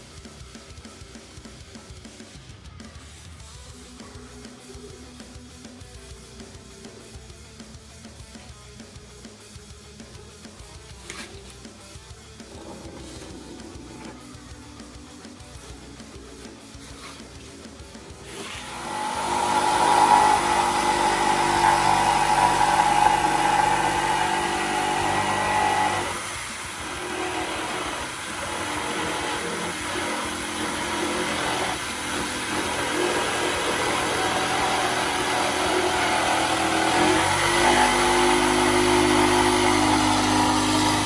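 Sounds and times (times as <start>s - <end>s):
electric jigsaw cutting wood: 12.4s - 14.2s, 18.1s - 41.0s.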